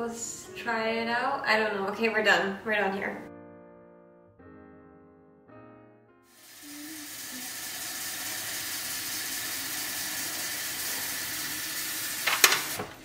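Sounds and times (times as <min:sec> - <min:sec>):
tap water filling plastic reservoir: 0:06.4 - 0:13.0.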